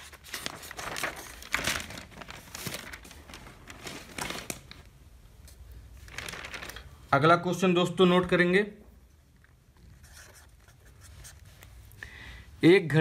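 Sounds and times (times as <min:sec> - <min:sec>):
paper rustling and crinkling: 0:00.0 - 0:04.9, 0:05.5 - 0:07.0.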